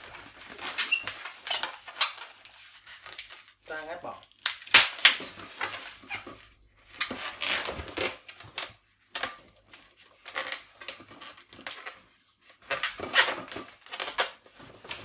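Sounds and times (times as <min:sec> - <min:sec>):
rubber balloon squeaking and scraping: 0:00.0 - 0:02.2, 0:05.7 - 0:08.4, 0:12.6 - 0:14.2.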